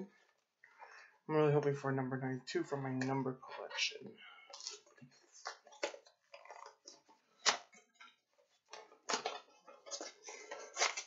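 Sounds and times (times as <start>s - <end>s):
packaging crinkling: 8.6s - 11.0s
packaging snapping: 8.7s - 11.0s.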